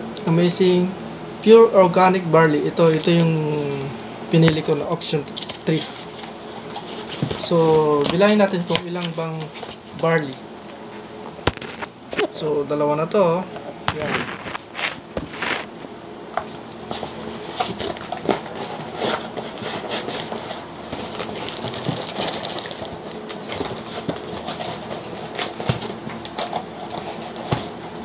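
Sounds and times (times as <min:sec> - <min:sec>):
cardboard boxes rustling and scraping: 0:05.4 - 0:10.3, 0:13.9 - 0:15.8, 0:16.4 - 0:28.0.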